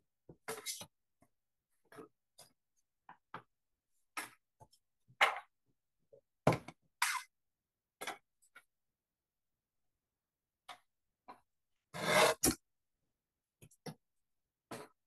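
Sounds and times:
paper sliding: 12.0 - 12.5.

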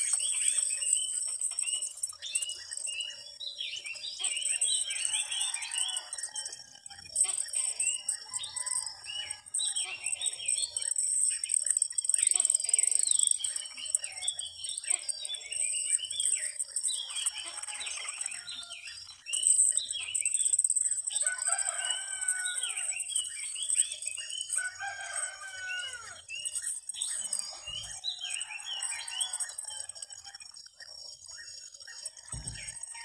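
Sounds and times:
small birds chirping: 0.0 - 33.0
roosters crowing: 4.9 - 6.8, 8.2 - 10.1, 17.4 - 18.9, 21.1 - 23.1, 24.6 - 26.3, 27.3 - 30.0
low thump: 32.3 - 32.8.

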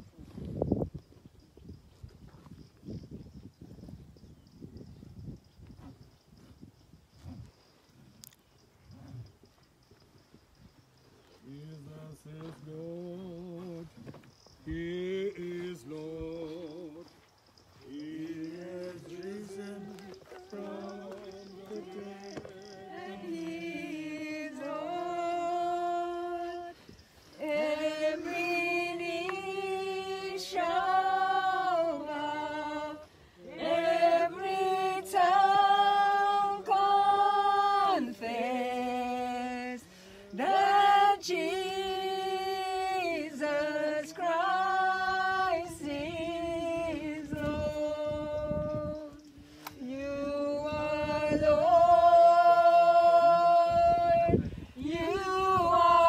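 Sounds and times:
group singing a slow hymn: 11.2 - 56.0.

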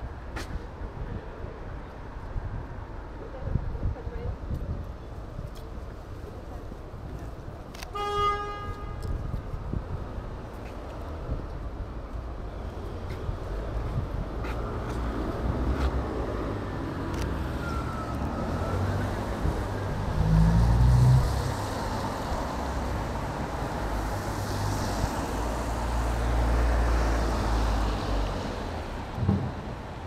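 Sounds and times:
vehicles passing: 5.2 - 30.0.

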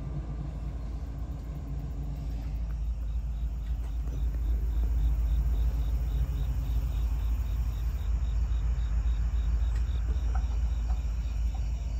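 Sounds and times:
crickets chirping: 0.0 - 11.9
low rumble: 0.0 - 11.9.

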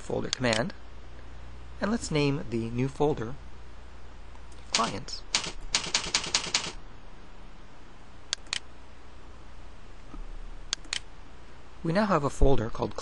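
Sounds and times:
keyboard typing: 4.6 - 6.8
mouse clicks: 8.3 - 8.7.

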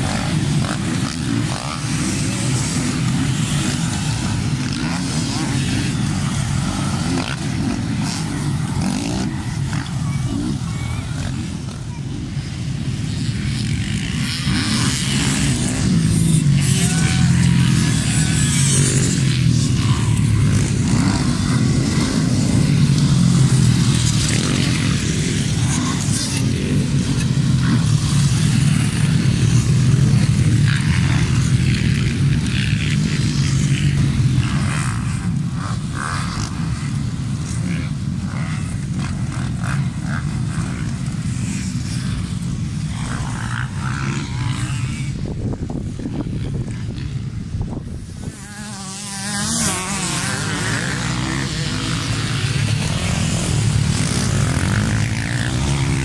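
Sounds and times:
motocross bike engines: 0.0 - 56.0.

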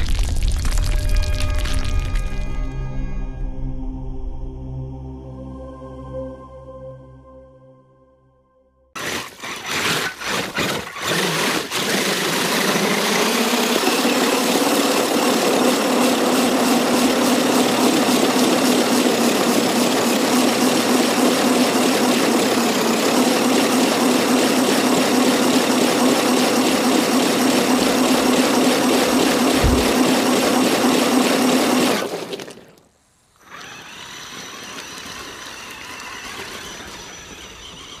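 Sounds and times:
toy truck motor whining: 9.0 - 32.6, 33.3 - 38.0
water spraying: 11.7 - 32.6.

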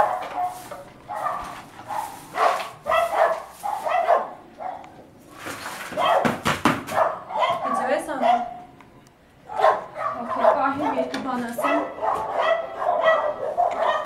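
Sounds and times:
dogs barking: 0.0 - 5.0, 6.0 - 8.7, 9.4 - 14.0
sharp knocks: 6.0 - 7.0.

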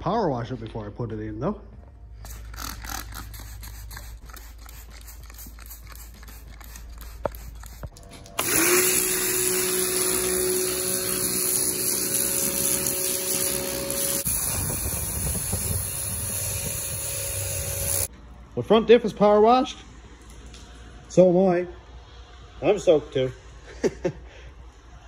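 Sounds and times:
spray bottle squirting: 2.2 - 9.6
pressure washer spraying: 2.3 - 18.1.

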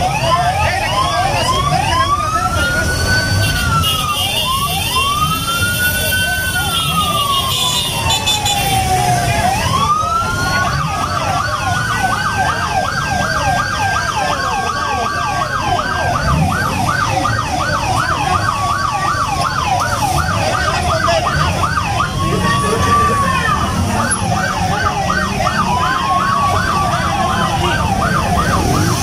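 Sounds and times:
crowd noise: 0.0 - 29.0
police siren wailing: 0.0 - 29.0
police siren yelp: 0.0 - 29.0.

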